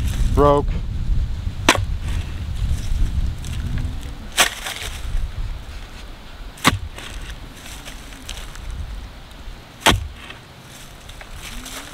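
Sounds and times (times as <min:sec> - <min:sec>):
low rumble: 0:00.0 - 0:11.9
post hole digger striking concrete: 0:01.7 - 0:01.9, 0:06.6 - 0:07.3, 0:09.8 - 0:10.4.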